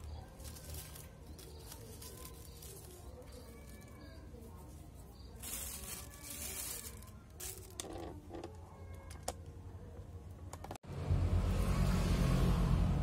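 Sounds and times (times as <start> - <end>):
soft rustling of plastic and leaves: 0.0 - 10.2.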